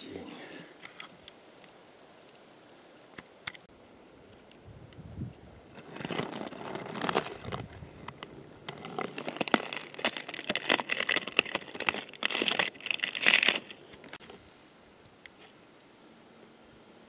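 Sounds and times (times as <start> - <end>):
plants rustling and snapping: 5.7 - 14.2.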